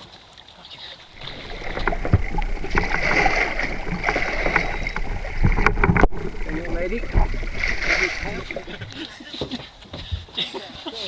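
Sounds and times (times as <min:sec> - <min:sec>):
low steady rumble: 0:01.1 - 0:09.0
shark thrashing in water: 0:01.1 - 0:09.0
water splashing and knocking: 0:01.1 - 0:10.2.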